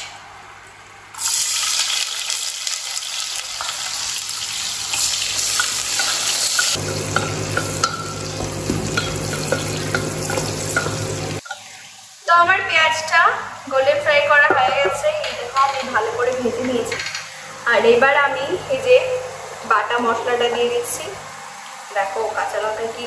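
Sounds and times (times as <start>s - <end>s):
onions sizzling in hot oil: 1.2s - 23.0s
spatula scraping pot: 4.9s - 11.6s.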